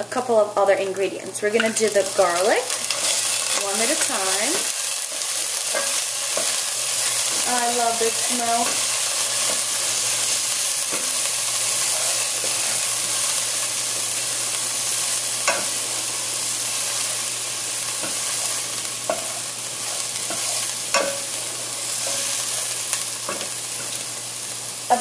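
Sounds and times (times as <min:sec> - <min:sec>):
shallots sizzling in oil: 0:00.0 - 0:25.0
wooden spoon scraping a pot: 0:02.1 - 0:13.6, 0:18.0 - 0:24.0.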